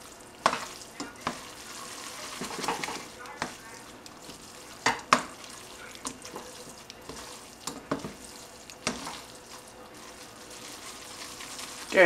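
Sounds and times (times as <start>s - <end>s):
faint sizzle: 0.0s - 12.0s
tongs tossing noodles in pot: 0.0s - 12.0s
tongs clacking against pot: 5.9s - 9.2s.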